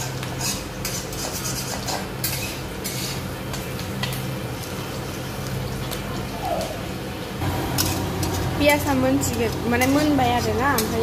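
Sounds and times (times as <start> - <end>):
metal spatula scraping wok: 0.0 - 3.2
vegetables sizzling in oil: 2.1 - 11.0
steady low hum: 2.6 - 11.0.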